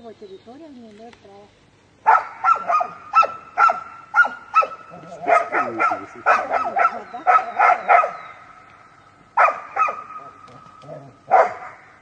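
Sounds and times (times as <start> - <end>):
dog barking: 2.0 - 8.3, 9.4 - 10.4, 11.0 - 11.9.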